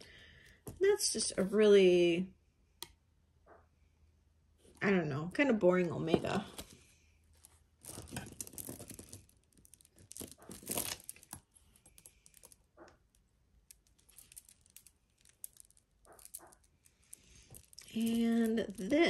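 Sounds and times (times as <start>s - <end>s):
packaging rustling: 6.5s - 12.7s, 13.7s - 19.0s
clinks of small metal pieces: 7.8s - 19.0s.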